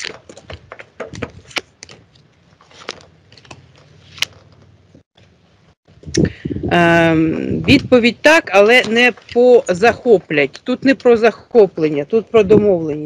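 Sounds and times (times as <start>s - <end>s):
cards being shuffled: 0.0s - 4.8s.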